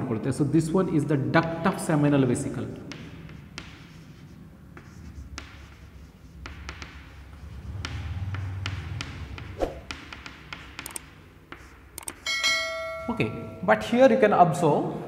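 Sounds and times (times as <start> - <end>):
chalk tapping and scraping on chalkboard: 1.6 - 12.4.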